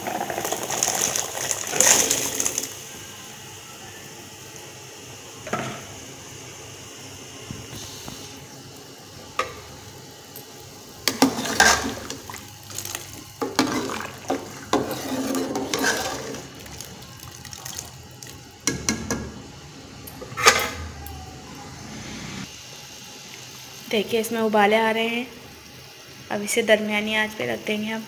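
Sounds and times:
chickpeas splashing into gravy: 0:00.0 - 0:02.7, 0:11.1 - 0:18.5.

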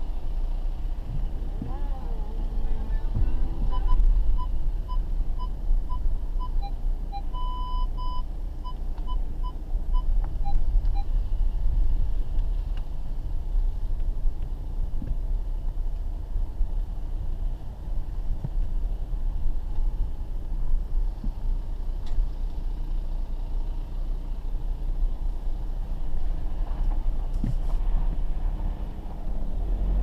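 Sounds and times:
car rumbling on dirt lane: 0:00.0 - 0:30.0
parking sensor beeping: 0:03.1 - 0:11.1.

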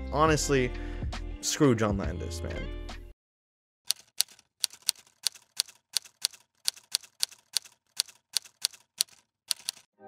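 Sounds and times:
typewriter key strikes: 0:03.9 - 0:09.8.

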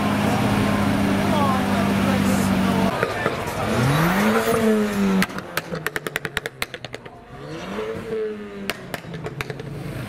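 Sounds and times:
car engine revving: 0:00.0 - 0:10.0
exhaust pops and crackles: 0:02.9 - 0:07.2, 0:08.6 - 0:09.9.

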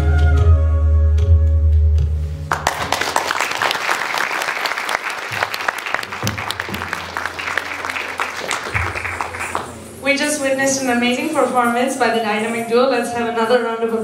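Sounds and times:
audience applause: 0:02.5 - 0:10.0.

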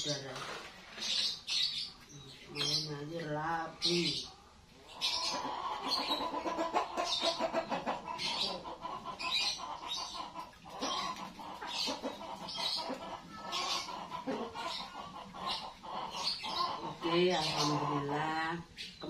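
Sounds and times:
hens cackling and clucking: 0:04.3 - 0:19.0.

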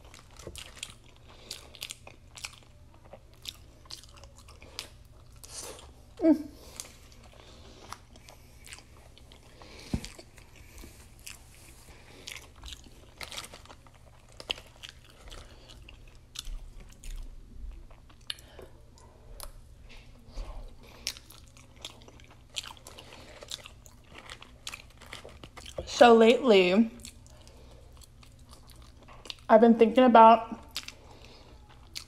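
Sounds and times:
chewing crunchy fries: 0:00.0 - 0:29.6, 0:30.5 - 0:32.0.

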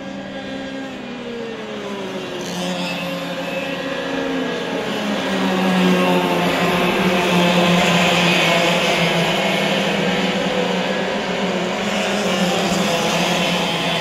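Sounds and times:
racing kart engines: 0:00.0 - 0:14.0.

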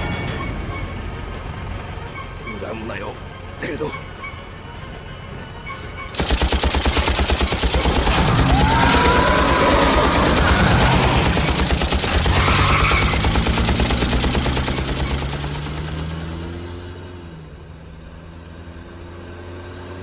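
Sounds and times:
rapid automatic gunfire: 0:06.2 - 0:16.3.

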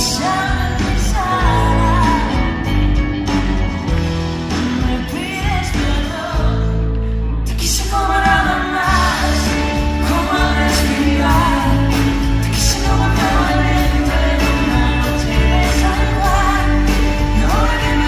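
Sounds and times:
woman singing: 0:00.0 - 0:02.8, 0:04.7 - 0:06.8, 0:07.5 - 0:18.0
pop-rock band playing: 0:00.0 - 0:18.0.

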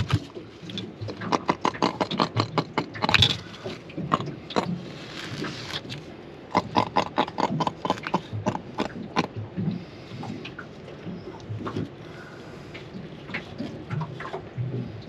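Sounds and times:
fish flapping and knocking on boat: 0:00.0 - 0:06.0.

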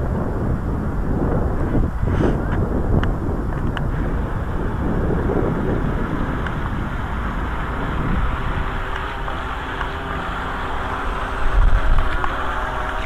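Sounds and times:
wind on microphone: 0:00.0 - 0:13.0
small electric motor whine: 0:03.7 - 0:13.0.

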